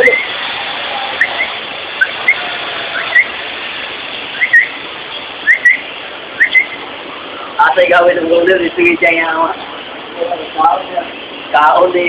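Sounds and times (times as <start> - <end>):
steady hiss: 0.0 - 12.0
short high whistled notes: 1.2 - 3.4, 4.3 - 4.8, 5.4 - 5.8, 6.4 - 6.8.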